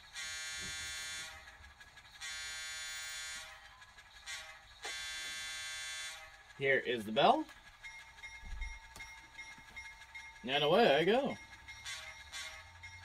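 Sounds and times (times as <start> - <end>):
model train horn blasts: 0.0 - 1.5, 2.2 - 3.6, 4.2 - 6.4, 11.2 - 12.9.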